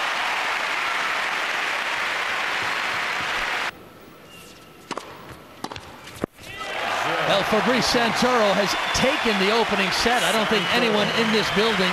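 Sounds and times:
crowd applauding: 0.0s - 3.7s, 6.7s - 11.9s.

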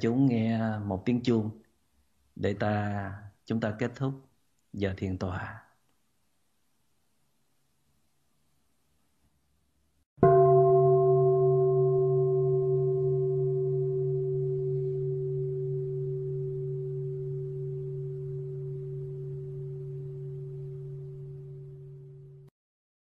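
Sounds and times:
meditation bell ringing: 10.2s - 22.5s.

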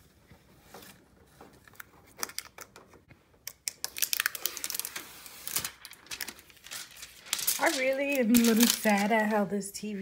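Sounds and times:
plastic film peeling crackles: 3.5s - 9.5s.

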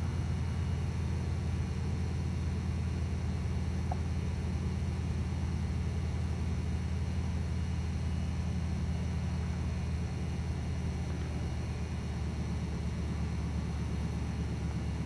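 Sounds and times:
propeller plane engines droning: 0.0s - 15.0s.

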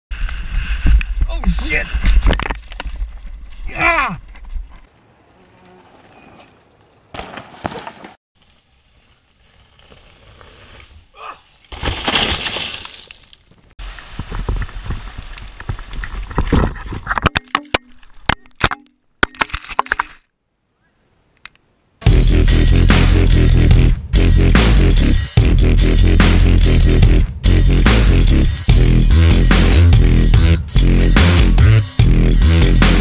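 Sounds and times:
bike rattling over rough ground: 6.0s - 18.3s
bike crash knocks and clatters: 11.7s - 13.2s
tyre and wind rush: 13.6s - 17.2s.

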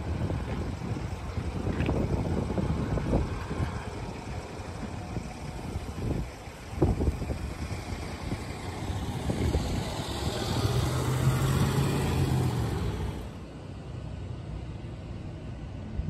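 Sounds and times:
car driving past: 7.8s - 13.4s.

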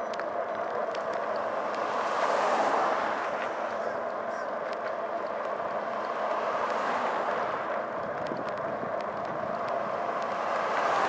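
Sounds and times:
bicycle road noise: 0.0s - 11.0s
rushing wind: 0.0s - 11.0s
faint light ticks: 0.1s - 1.9s, 3.3s - 6.8s, 7.7s - 11.0s.

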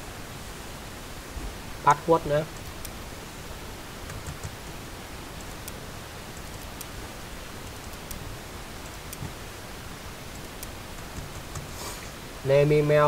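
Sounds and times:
recording hiss: 0.0s - 13.0s
keyboard and mouse clicks: 4.0s - 4.8s, 5.4s - 7.0s, 7.6s - 8.2s, 8.8s - 9.4s, 10.3s - 11.8s.

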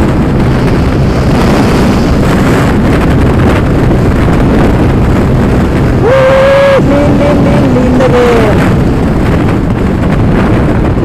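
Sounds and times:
road noise: 0.0s - 11.0s
wind buffeting microphone: 0.0s - 11.0s.

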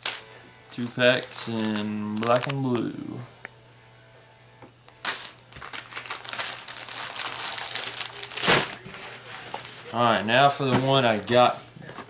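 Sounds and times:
plastic packs crinkling: 0.0s - 3.0s, 5.0s - 11.6s.

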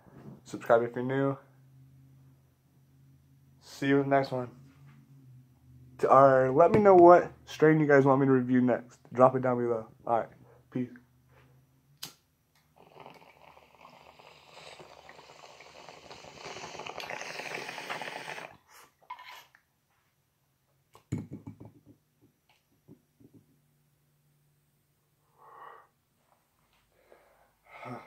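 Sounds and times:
water bong bubbling: 12.8s - 18.6s
knock: 21.1s - 22.0s.

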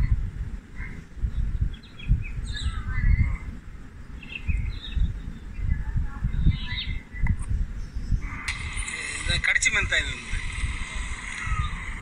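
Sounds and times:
wind buffeting microphone: 0.0s - 12.0s
bird chirps: 0.8s - 3.4s, 4.0s - 8.8s.

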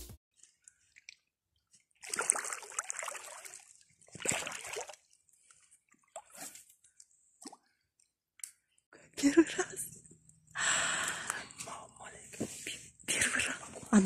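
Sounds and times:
water splashing: 0.4s - 6.6s.

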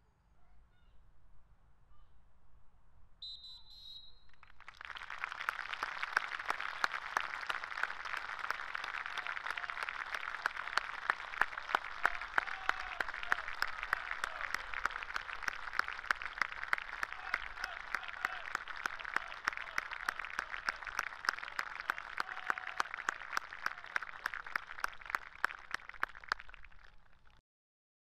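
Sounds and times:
short whistle blast: 3.2s - 4.4s
crowd applauding: 4.4s - 27.4s.

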